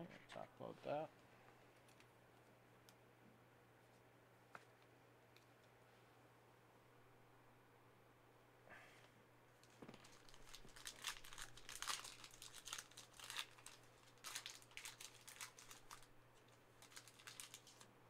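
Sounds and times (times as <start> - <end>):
plastic wrapper tearing and crinkling: 9.6 - 17.9.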